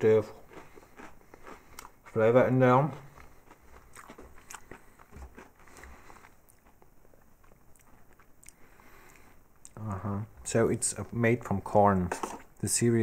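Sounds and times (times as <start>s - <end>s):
faint chewing and crunching: 0.0s - 9.8s.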